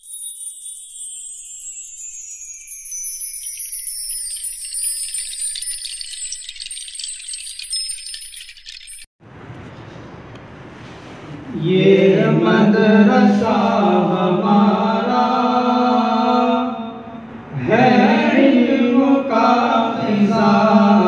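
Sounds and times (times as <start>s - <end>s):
shimmering jingle chime effect: 0.0s - 9.1s.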